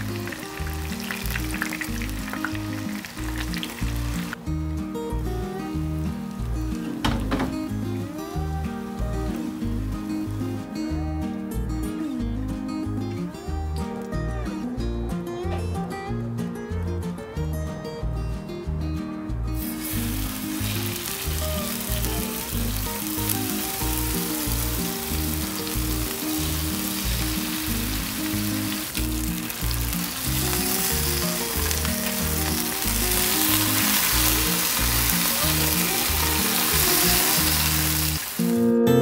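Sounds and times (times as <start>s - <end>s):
chicken sizzling in hot oil: 0.0s - 4.4s, 19.6s - 38.6s.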